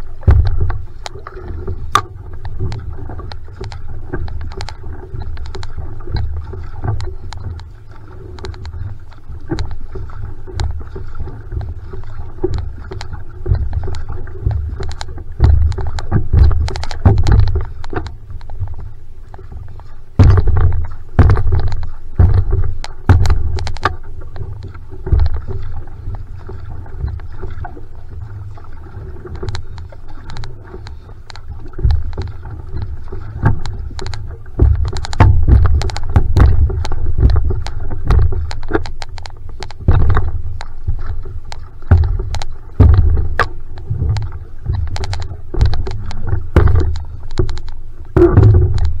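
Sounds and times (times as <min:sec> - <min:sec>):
low rumble: 0:00.0 - 0:49.0
paddle water splashing: 0:00.0 - 0:49.0
sharp knocks: 0:20.2 - 0:24.0, 0:33.5 - 0:39.0, 0:41.9 - 0:43.5.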